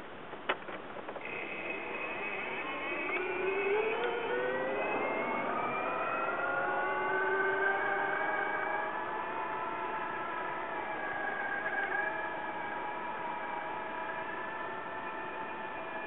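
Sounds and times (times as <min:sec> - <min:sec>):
vehicle motor whining: 0:00.3 - 0:16.0.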